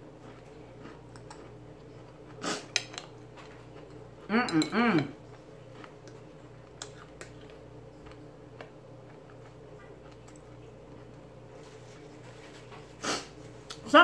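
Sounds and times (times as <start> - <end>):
steady low hum: 0.0 - 14.0
chewing clicks: 0.2 - 4.0, 5.8 - 10.6.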